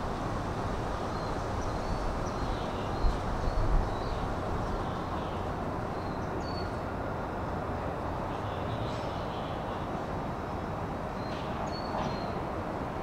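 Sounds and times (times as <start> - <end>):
small birds chirping: 1.1 - 6.9.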